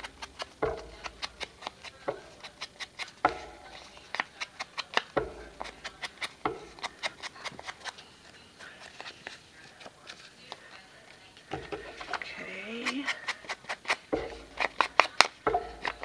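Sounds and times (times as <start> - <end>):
dull thumps: 0.0 - 8.0, 11.5 - 16.0
foam dauber tapping: 0.0 - 10.7, 11.4 - 16.0.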